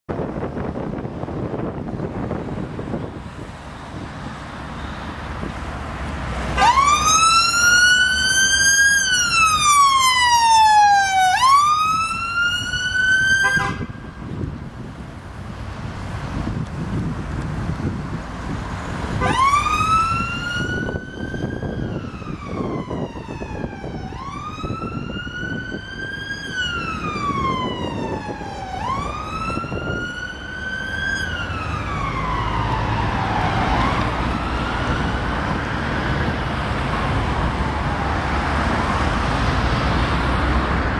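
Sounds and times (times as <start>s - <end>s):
road traffic rumble: 0.1s - 40.9s
police siren wailing: 6.5s - 14.2s, 19.1s - 39.9s.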